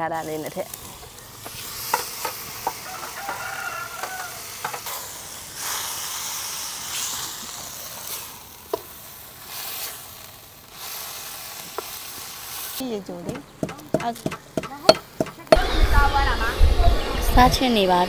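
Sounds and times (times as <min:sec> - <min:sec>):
fish sizzling in wok: 0:00.0 - 0:16.2
metal spatula scraping wok: 0:00.3 - 0:06.0
rooster crowing: 0:02.6 - 0:04.8.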